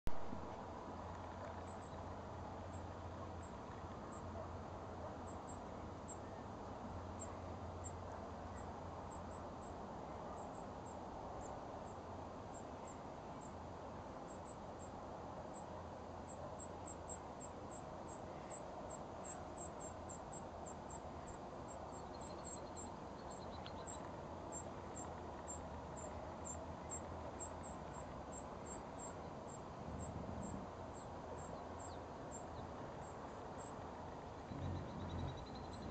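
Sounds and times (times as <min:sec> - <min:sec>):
low outdoor background rush: 0:00.1 - 0:35.9
insects chirping: 0:16.2 - 0:33.8, 0:34.4 - 0:35.9.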